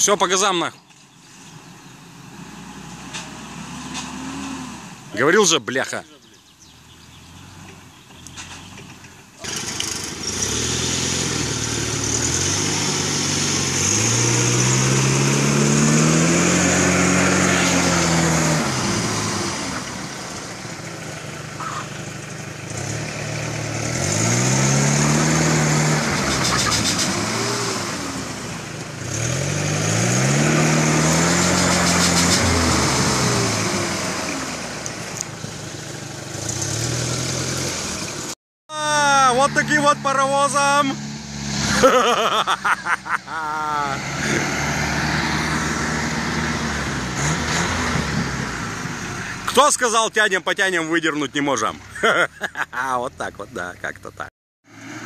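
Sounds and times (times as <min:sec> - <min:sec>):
engine revving hard: 0:02.4 - 0:05.1, 0:09.4 - 0:20.5, 0:22.6 - 0:35.0, 0:36.2 - 0:38.4, 0:39.0 - 0:49.5, 0:54.6 - 0:55.0.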